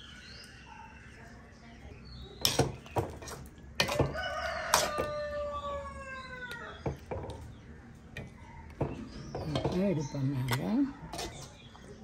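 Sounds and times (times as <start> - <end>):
rooster crowing: 3.9 - 6.8.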